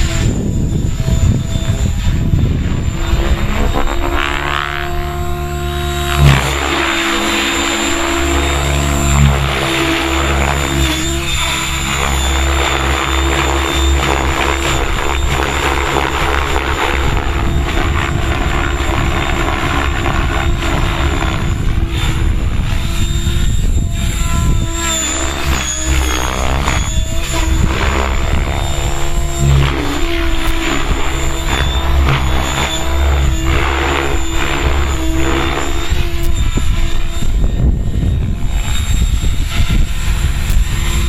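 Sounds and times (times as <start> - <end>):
helicopter rotor whooshing: 0.0 - 41.0
high motor whine: 0.0 - 41.0
wind buffeting microphone: 0.0 - 41.0.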